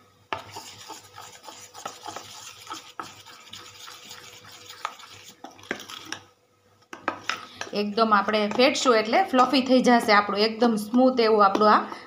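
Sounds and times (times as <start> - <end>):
wet stirring of batter: 0.3 - 9.7.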